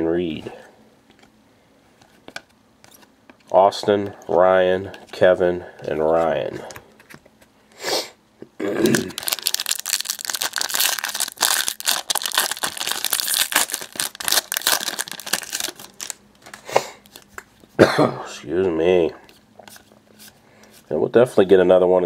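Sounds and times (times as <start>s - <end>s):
foil pack tearing: 8.9s - 16.2s
foil wrapper crinkling: 8.9s - 17.4s.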